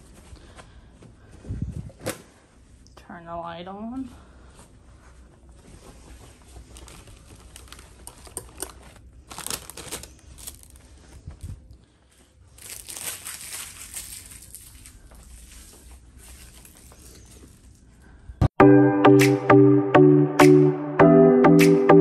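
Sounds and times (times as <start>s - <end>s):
rustling and crinkling: 0.0s - 2.9s, 3.8s - 18.4s.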